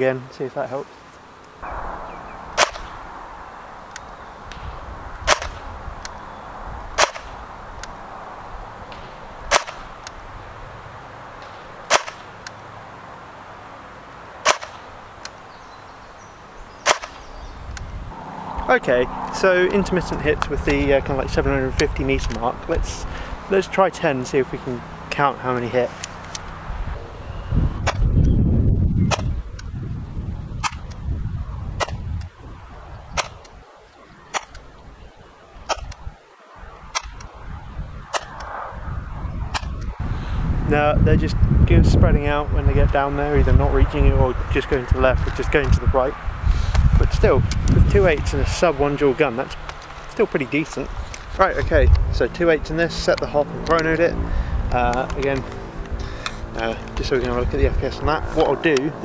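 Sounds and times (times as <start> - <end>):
airsoft rifle shots: 1.6 - 5.8, 7.0 - 7.4, 8.9 - 10.0, 11.4 - 12.4, 14.4 - 14.9, 16.8 - 17.3, 35.7 - 36.0.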